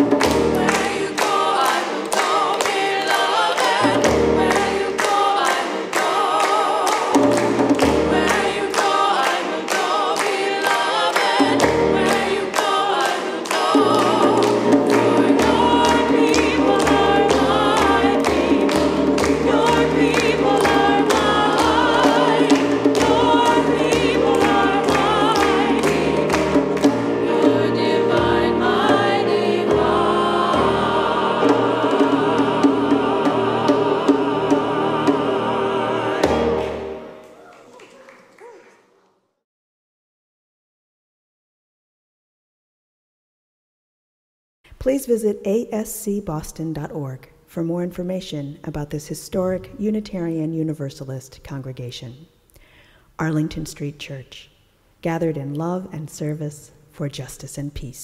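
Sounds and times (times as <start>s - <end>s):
people clapping along: 0.0s - 31.8s, 35.5s - 39.2s
piano accompaniment: 0.0s - 37.5s
choir singing: 0.0s - 39.0s.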